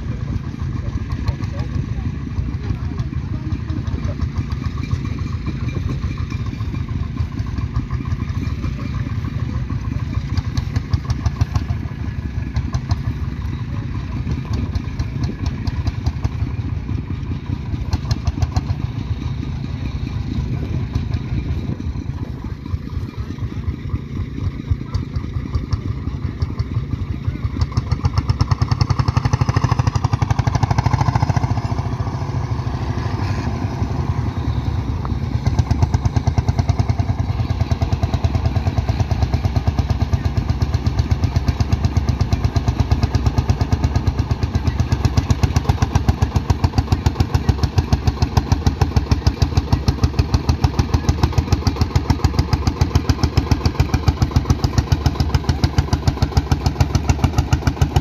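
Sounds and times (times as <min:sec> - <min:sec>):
tractor engines under load: 0:00.0 - 0:58.0.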